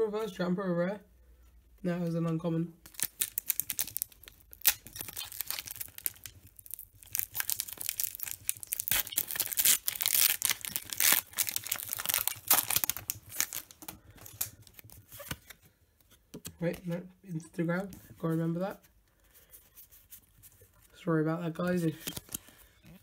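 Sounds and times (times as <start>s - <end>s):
foil wrapper tearing and crinkling: 2.8s - 15.4s, 21.9s - 22.5s.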